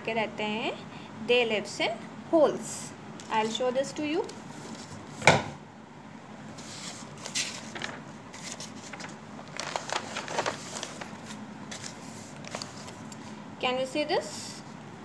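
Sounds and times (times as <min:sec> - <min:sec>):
paper rustling: 0:06.6 - 0:13.2.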